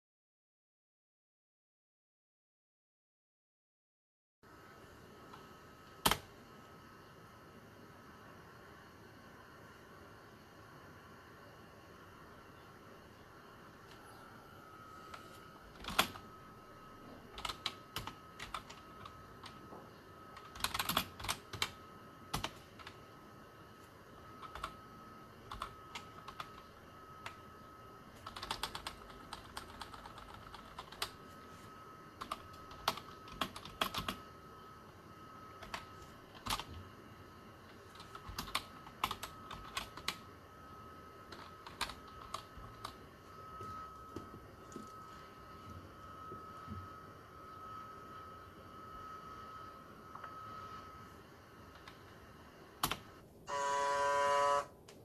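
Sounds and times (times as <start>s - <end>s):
faint high-pitched tone: 38.7s - 52.8s, 53.4s - 54.8s.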